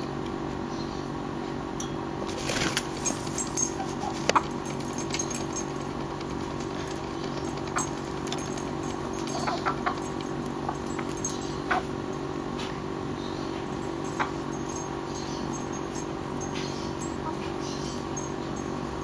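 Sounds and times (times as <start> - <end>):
low mechanical hum: 0.0 - 19.0
puppy scuffling with a hen: 2.2 - 14.6.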